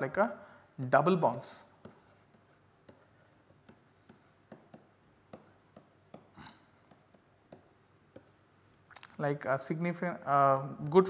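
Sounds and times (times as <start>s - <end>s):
stylus tapping on pen tablet: 1.8s - 8.4s.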